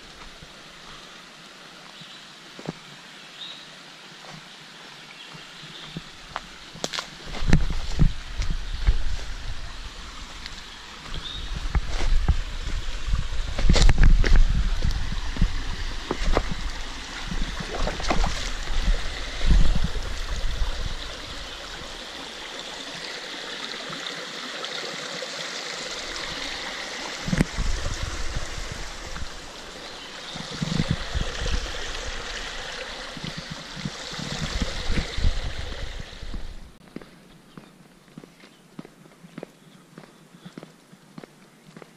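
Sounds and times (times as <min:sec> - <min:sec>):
water rushing over rocks: 0:05.8 - 0:36.8.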